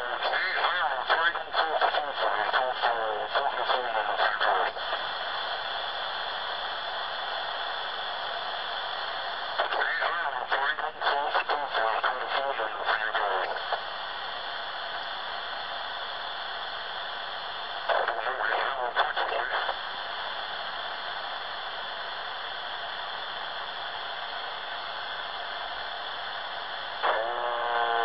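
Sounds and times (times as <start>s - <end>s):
distorted radio voice: 0.0s - 5.9s, 9.4s - 14.0s, 17.6s - 19.9s, 27.0s - 28.0s
radio static hiss: 0.0s - 28.0s.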